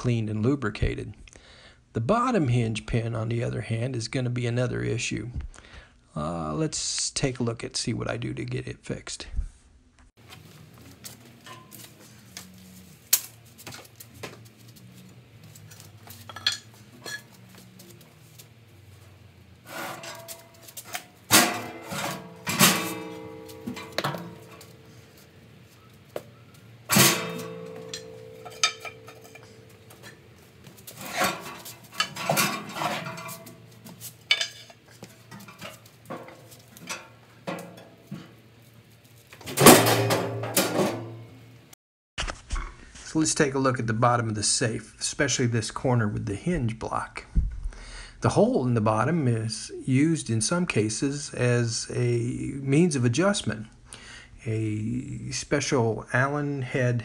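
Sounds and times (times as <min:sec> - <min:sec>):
metal safe clanking: 0:19.7 - 0:25.2, 0:25.9 - 0:30.4, 0:31.0 - 0:33.6.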